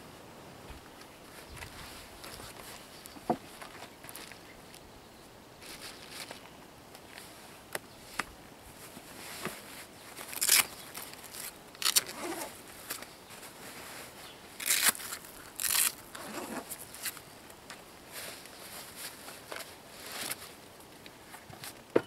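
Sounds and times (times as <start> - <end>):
velcro ripping: 10.2 - 13.0, 14.6 - 17.2.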